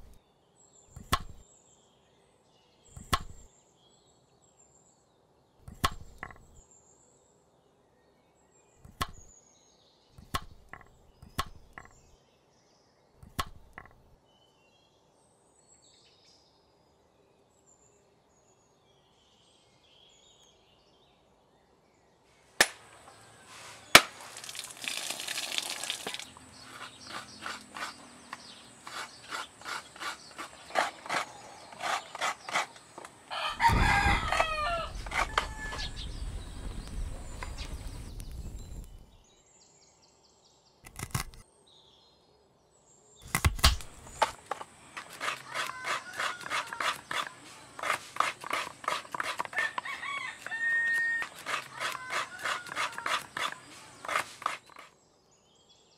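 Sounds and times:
cleaver chopping on wooden block: 0:01.0 - 0:01.4, 0:03.0 - 0:03.5, 0:05.7 - 0:06.6, 0:08.9 - 0:09.3, 0:10.2 - 0:12.1, 0:13.2 - 0:14.0, 0:22.6 - 0:22.9, 0:23.9 - 0:24.2, 0:26.5 - 0:35.8, 0:43.2 - 0:54.9
rooster crowing: 0:33.3 - 0:36.2, 0:49.4 - 0:53.2.

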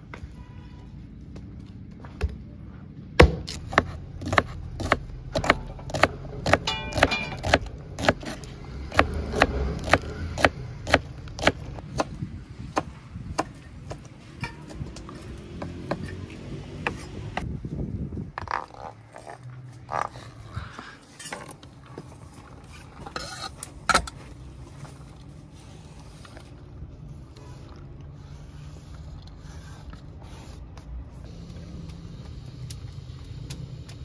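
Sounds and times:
hatchet splitting kindling: 0:03.2 - 0:11.6
knife chopping on wooden board: 0:03.2 - 0:12.2.

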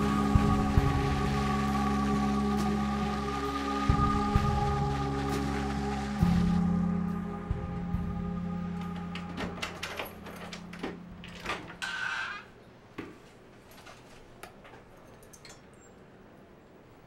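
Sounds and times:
low held music chord: 0:00.0 - 0:11.2
door scraping: 0:08.8 - 0:12.6.

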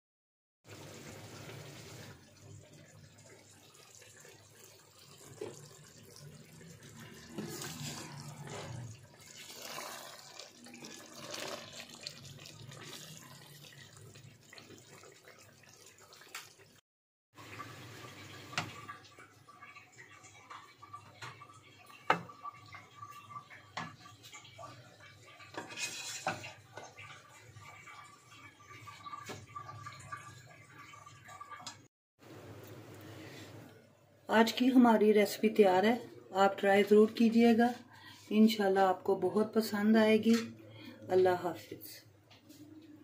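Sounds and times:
curry simmering in a pot: 0:00.7 - 0:16.8, 0:17.4 - 0:31.8
wooden spatula scraping a pot: 0:07.2 - 0:10.1, 0:25.4 - 0:26.9.

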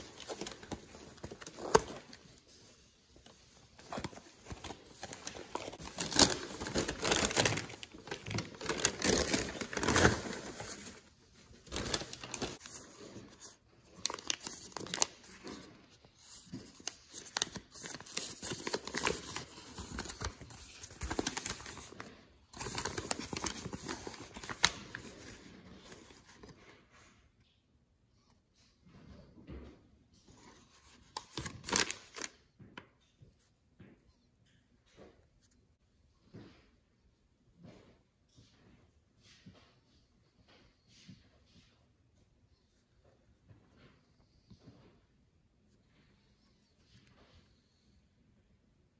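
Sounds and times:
paper and foil bags crinkling: 0:03.4 - 0:25.7.

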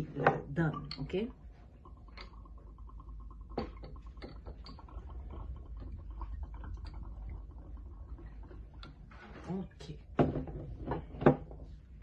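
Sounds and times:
liquid trickling into a glass: 0:00.7 - 0:10.2.

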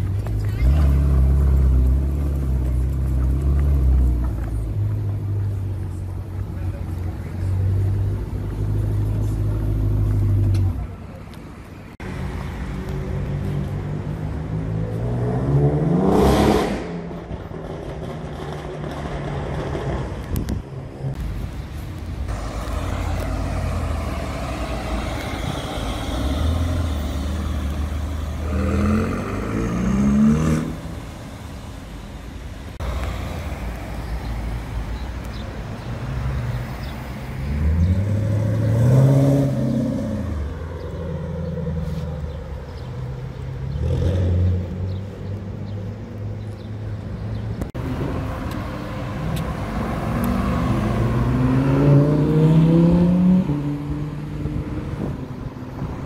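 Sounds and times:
car passing by: 0:21.4 - 0:32.1, 0:47.8 - 0:56.0
sports car engines accelerating: 0:22.3 - 0:31.6, 0:36.8 - 0:56.0.

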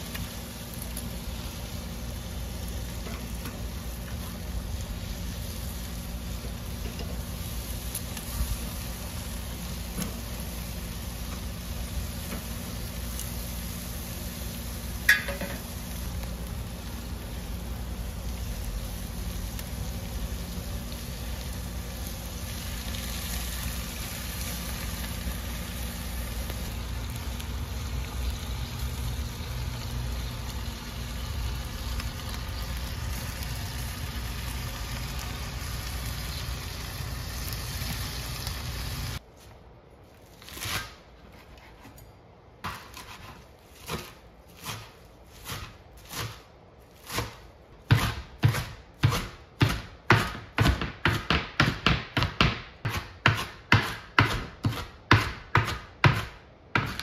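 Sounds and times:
food sizzling on a grill: 0:00.0 - 0:39.2.

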